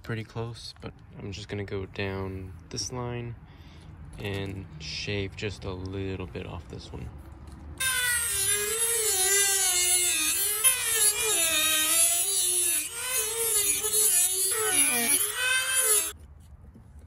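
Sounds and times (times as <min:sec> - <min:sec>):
rotary tool grinding: 0:07.8 - 0:16.2.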